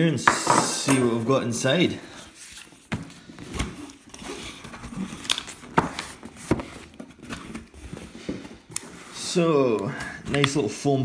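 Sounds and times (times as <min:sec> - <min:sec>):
cardboard scraping and rustling: 0:02.3 - 0:11.0.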